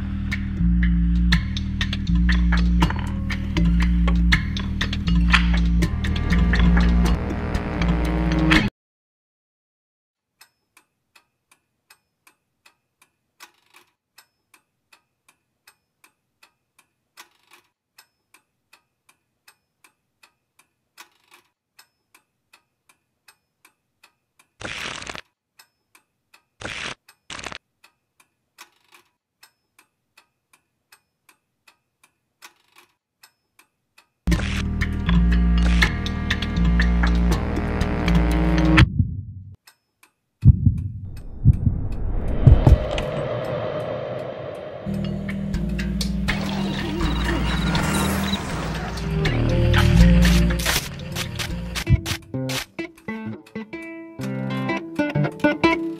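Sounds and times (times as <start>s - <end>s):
steady ticking: 0.1s - 7.2s, 25.5s - 52.2s.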